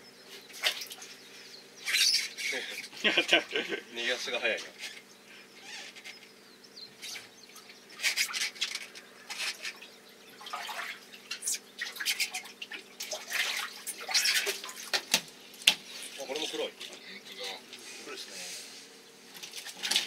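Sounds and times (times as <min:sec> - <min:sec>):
steady hum: 0:00.0 - 0:19.8
water splashing: 0:10.4 - 0:16.3.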